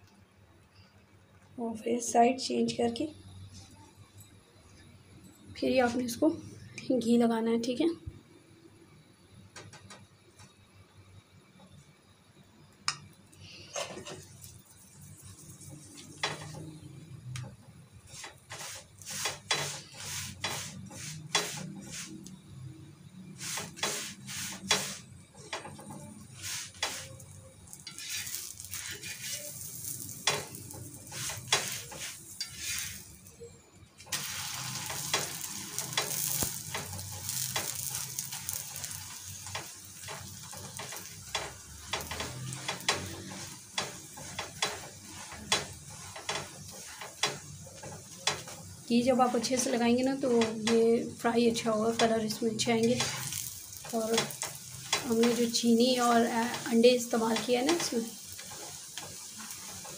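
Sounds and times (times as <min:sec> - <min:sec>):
bread sizzling in ghee: 0:08.9 - 0:59.9
metal spatula scraping griddle: 0:13.5 - 0:17.0, 0:18.1 - 0:22.2, 0:23.4 - 0:33.2, 0:34.2 - 0:59.9.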